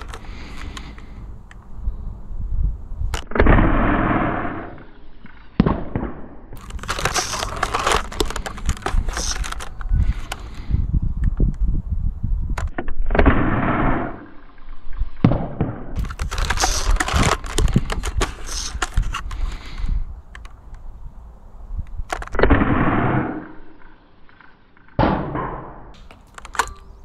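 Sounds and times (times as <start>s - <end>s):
toy blaster air shot: 6.6s - 10.4s.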